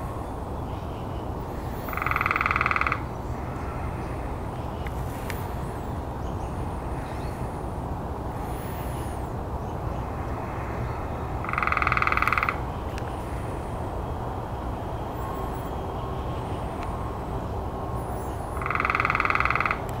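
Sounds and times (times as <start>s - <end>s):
woodpecker rolling churr call: 1.5s - 3.8s, 11.4s - 12.8s, 18.2s - 20.0s.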